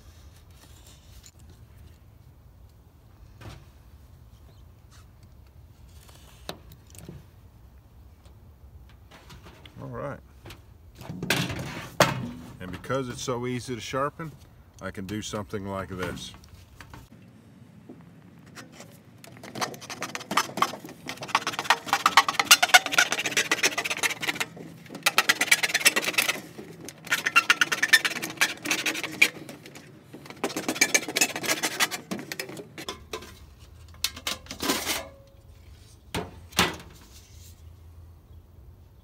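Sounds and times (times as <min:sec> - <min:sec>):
knife sawing through sheet metal: 0:21.2 - 0:24.5.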